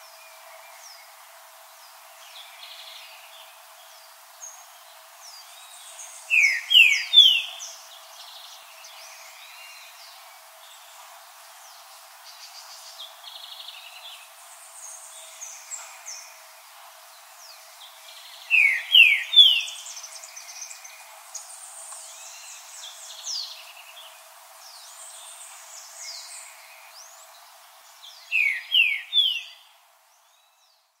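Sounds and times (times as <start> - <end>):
birds chirping and trilling: 0.0 - 31.0.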